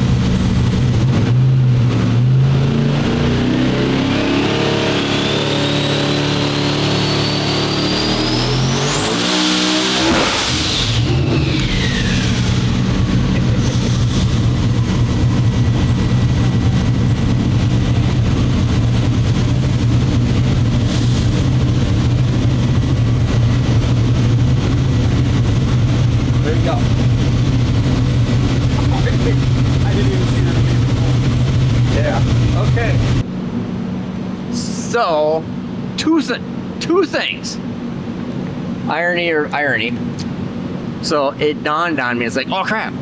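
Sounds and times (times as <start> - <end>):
race engine revving: 0.0 - 33.3
turbo whine: 0.0 - 41.7
exhaust boom: 8.0 - 36.0.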